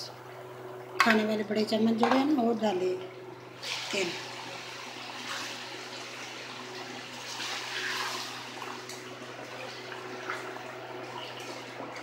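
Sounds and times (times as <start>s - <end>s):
steady low hum: 0.0s - 12.0s
food sizzling and bubbling: 3.2s - 12.0s.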